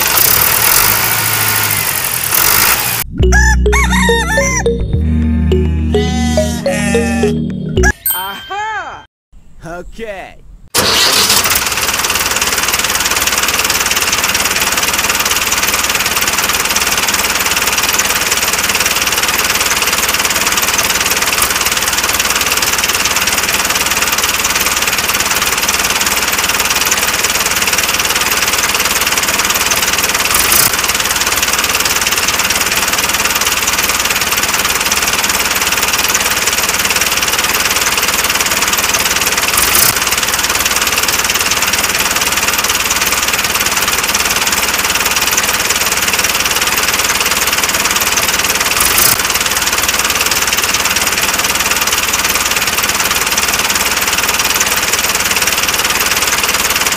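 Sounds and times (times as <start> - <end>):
tractor engine running: 10.8 - 56.9.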